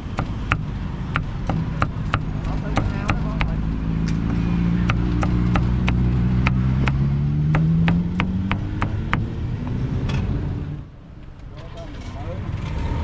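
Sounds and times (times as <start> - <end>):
passing vehicle engine hum: 0.0 - 13.0
cleaver chopping meat on wood: 0.1 - 3.6, 4.2 - 9.3.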